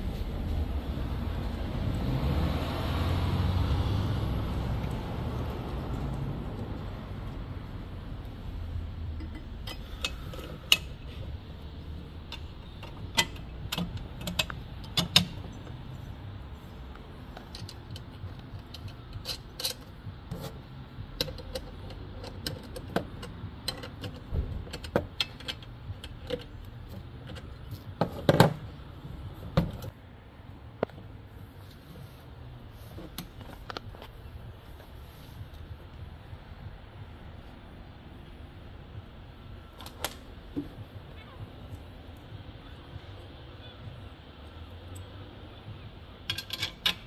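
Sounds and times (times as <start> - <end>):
parts and tools clicking and knocking: 9.1 - 11.3, 12.2 - 15.8, 16.9 - 28.8, 46.2 - 47.0.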